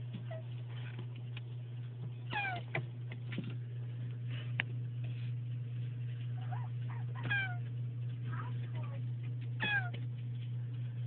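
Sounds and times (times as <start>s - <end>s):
low hum: 0.0s - 11.0s.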